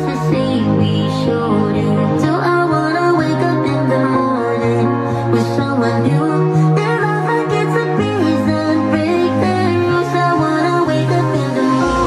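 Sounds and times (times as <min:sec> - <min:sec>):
music through speakers: 0:00.0 - 0:12.0
bass line: 0:11.3 - 0:12.0.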